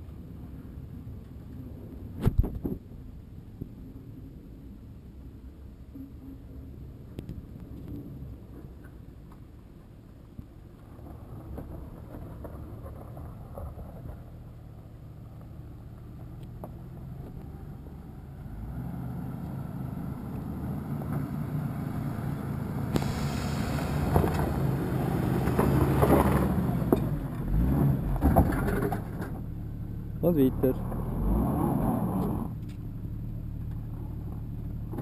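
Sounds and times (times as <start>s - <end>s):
off-road vehicle engine running: 10.8s - 35.0s.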